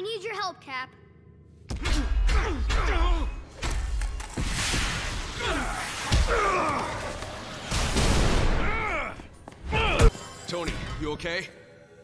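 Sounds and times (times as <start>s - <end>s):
men grunting and crying out: 1.7s - 3.5s, 5.3s - 7.5s, 8.4s - 10.1s.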